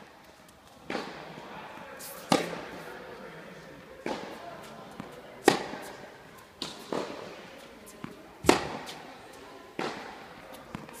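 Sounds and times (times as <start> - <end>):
tennis balls struck by rackets: 0.8 - 1.4, 2.2 - 2.8, 4.0 - 11.0
tennis ball bouncing: 0.9 - 1.3, 2.2 - 2.6, 4.0 - 6.0, 6.6 - 9.1, 9.8 - 11.0.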